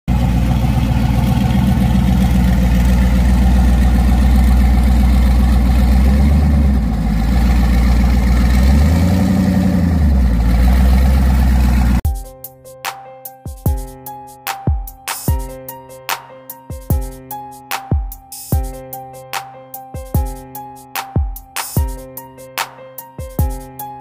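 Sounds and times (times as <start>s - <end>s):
car engine with deep exhaust: 0.1s - 12.0s.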